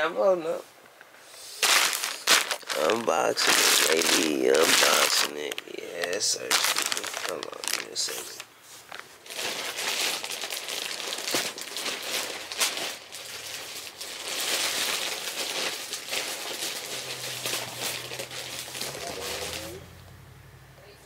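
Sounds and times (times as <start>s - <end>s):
packaging crinkling and rustling: 1.6s - 19.8s.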